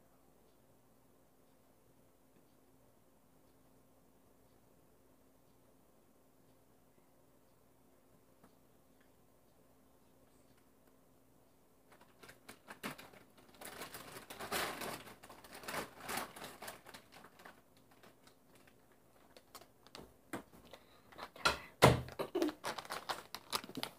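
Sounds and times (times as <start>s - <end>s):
crinkling rustles: 11.9s - 21.4s, 22.1s - 23.9s.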